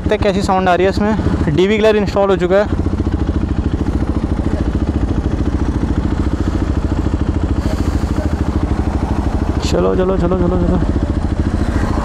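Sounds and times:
motorcycle engine running at low revs: 0.0 - 12.0.

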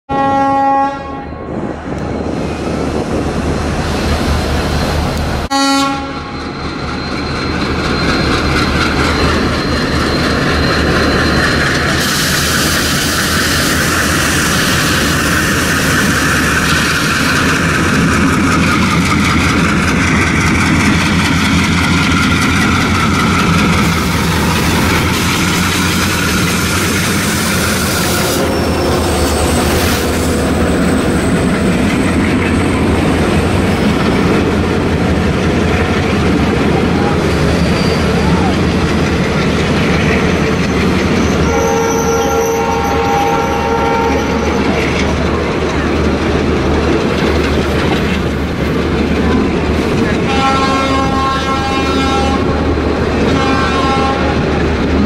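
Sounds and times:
multi-tone locomotive horn: 0.1 - 1.7, 5.5 - 6.6, 27.5 - 30.1, 41.3 - 44.8, 50.1 - 52.6, 53.2 - 54.6
diesel locomotive engines: 0.1 - 55.0.

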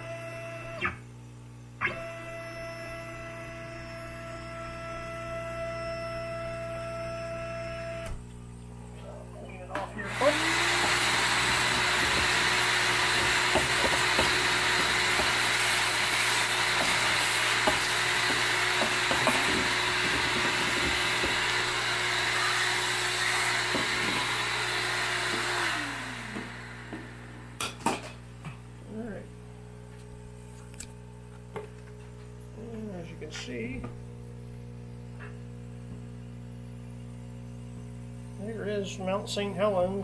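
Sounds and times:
vacuum cleaner whining: 0.0 - 1.0, 1.8 - 8.4, 9.0 - 28.3.

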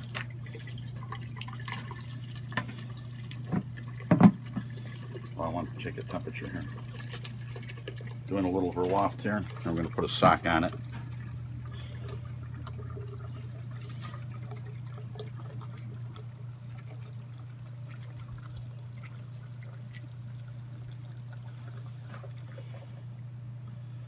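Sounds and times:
liquid trickling from spigot: 0.0 - 23.3.

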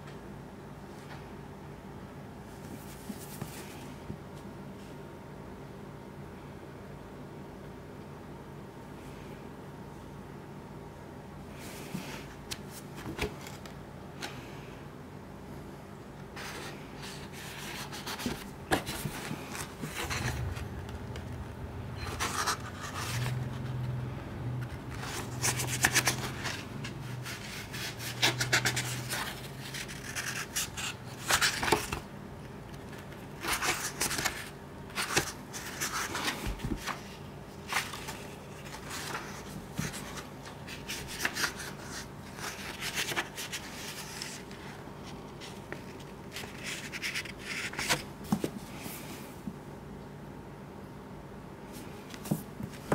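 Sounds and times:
paper rustling: 16.4 - 21.4, 22.0 - 24.0, 24.6 - 32.1, 32.7 - 48.8
book pages turning: 16.4 - 32.1, 32.7 - 48.6.

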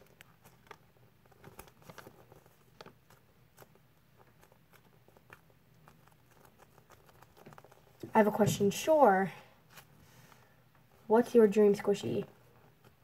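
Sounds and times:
small clicks and rustles: 0.0 - 8.4.

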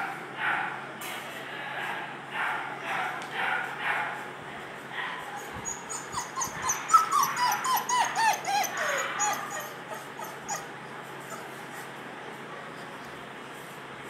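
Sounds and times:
puppy whimpering: 5.4 - 11.9.

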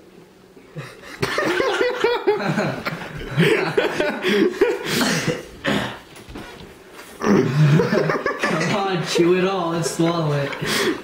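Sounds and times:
people laughing: 0.8 - 5.5, 7.3 - 11.0.

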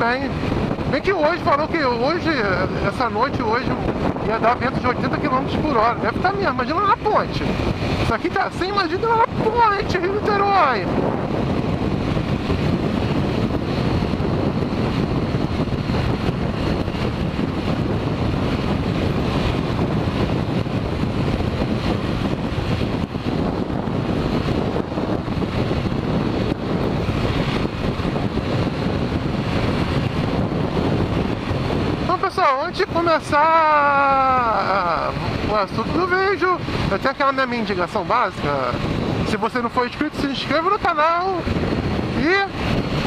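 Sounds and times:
road noise: 0.0 - 43.0
wind buffeting microphone: 0.0 - 43.0.

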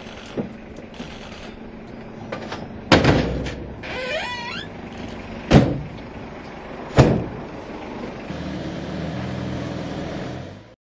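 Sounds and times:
low engine hum: 0.0 - 10.8
van doors slamming: 2.4 - 6.2, 6.9 - 7.5.

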